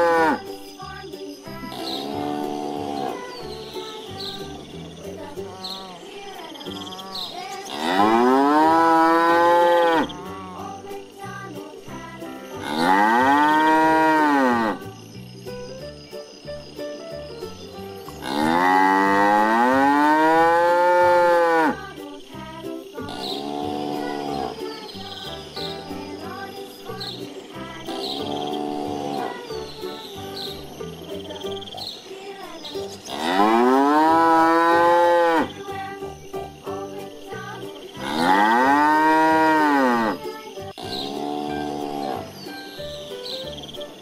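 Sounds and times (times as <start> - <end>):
cow mooing: 0.0 - 0.4, 7.7 - 10.6, 12.6 - 14.8, 18.2 - 21.8, 33.1 - 35.5, 38.0 - 40.2
soft background music: 0.0 - 44.0.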